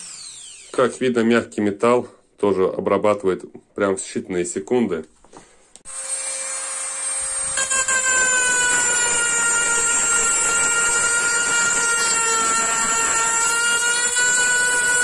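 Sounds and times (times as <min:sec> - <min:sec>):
rotary tool whining: 0:00.0 - 0:00.8, 0:05.9 - 0:15.0
burr grinding copper tube: 0:07.3 - 0:15.0.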